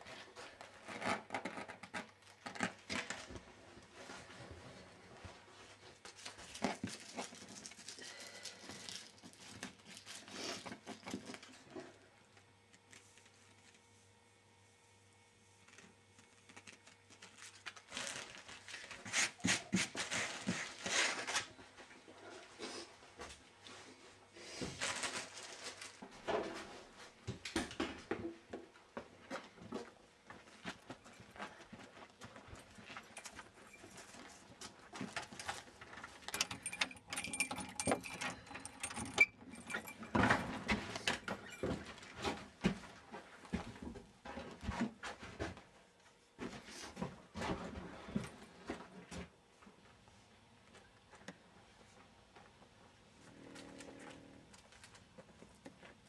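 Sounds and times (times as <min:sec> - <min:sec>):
rustling and crinkling: 0:00.0 - 0:14.2, 0:15.3 - 0:38.8, 0:39.5 - 0:56.0
clicks rattles and knocks: 0:35.0 - 0:41.9.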